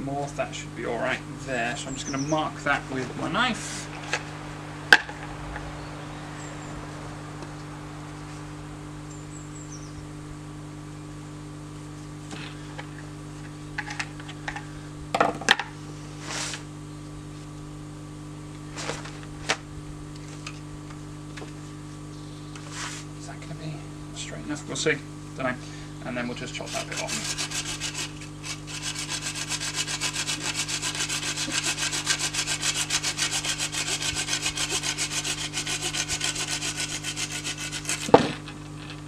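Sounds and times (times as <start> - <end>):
steady low hum: 0.0 - 39.0
knife scraping wood: 26.4 - 38.8.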